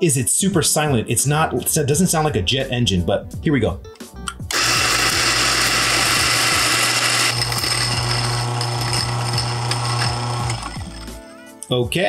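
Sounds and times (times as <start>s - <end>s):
coffee grinder grinding: 4.5s - 11.3s.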